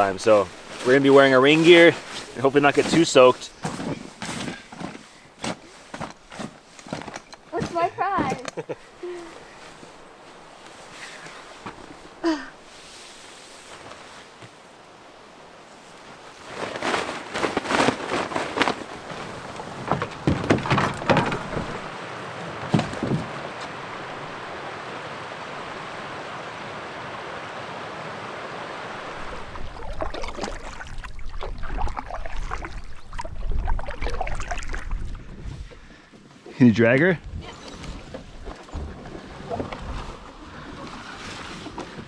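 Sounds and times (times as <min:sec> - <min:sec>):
knocks and rustles: 0:02.1 - 0:08.6, 0:16.5 - 0:24.0, 0:37.6 - 0:42.0
paddle strokes in water: 0:16.3 - 0:35.9
flowing river water: 0:20.9 - 0:35.4
wind on microphone: 0:22.9 - 0:35.9.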